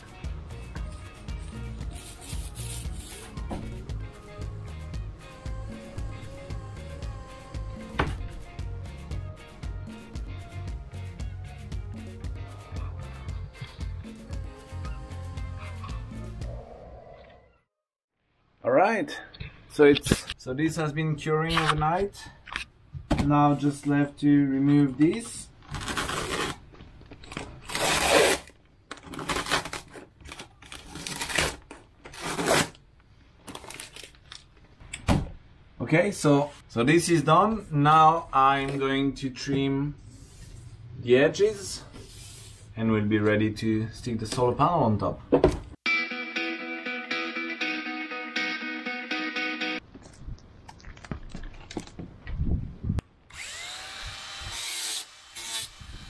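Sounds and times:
cloth ripping off a panel: 0:25.7 - 0:26.6, 0:27.7 - 0:28.6
jigsaw cutting: 0:53.3 - 0:56.0.

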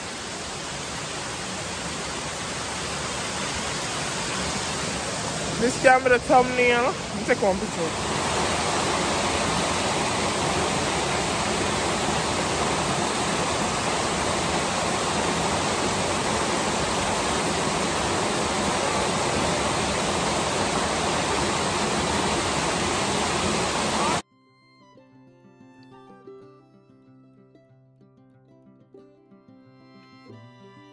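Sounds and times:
waterfall rushing over rocks: 0:00.0 - 0:24.2.

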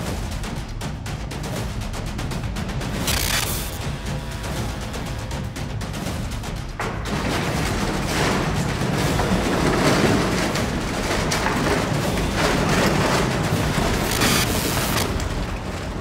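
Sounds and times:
cinematic music with percussive booms: 0:00.0 - 0:16.0.

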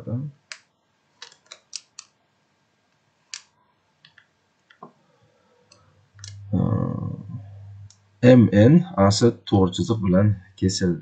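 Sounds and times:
computer mouse clicking: 0:00.5 - 0:02.1.

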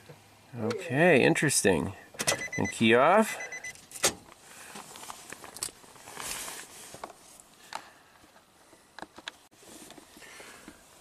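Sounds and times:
soft rustling: 0:04.4 - 0:07.7.

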